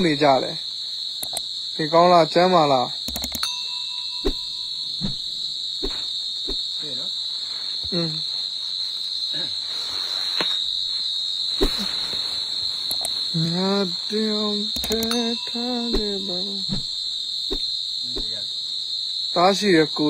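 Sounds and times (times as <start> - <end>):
night insects chirring: 0.0 - 20.0
sharp click: 1.2 - 1.5, 3.0 - 3.5, 12.9 - 13.2, 14.8 - 15.2.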